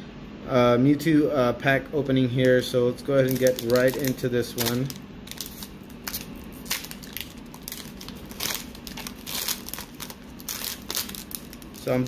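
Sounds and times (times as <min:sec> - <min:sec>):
foil wrapper crinkling: 0:03.1 - 0:12.0.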